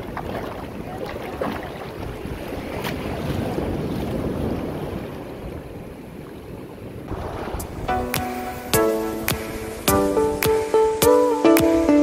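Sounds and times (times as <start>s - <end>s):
wind buffeting microphone: 0.0s - 11.0s
ocean water sloshing: 0.0s - 11.8s.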